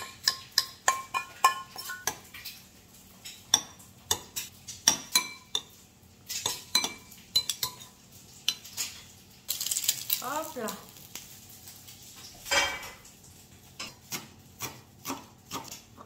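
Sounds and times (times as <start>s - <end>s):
spoon clinking on metal bowl: 0.0s - 2.2s, 6.4s - 7.9s.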